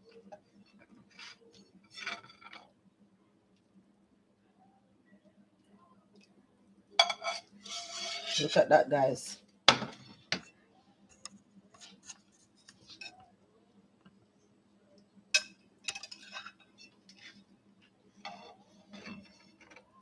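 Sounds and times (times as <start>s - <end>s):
metal spatula tapping dishes: 7.0s - 7.4s, 15.4s - 16.5s.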